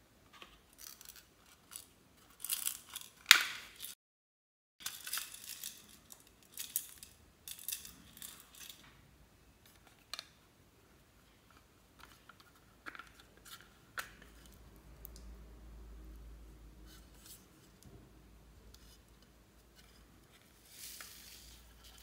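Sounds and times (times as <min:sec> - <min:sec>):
rustling: 0:18.6 - 0:22.0.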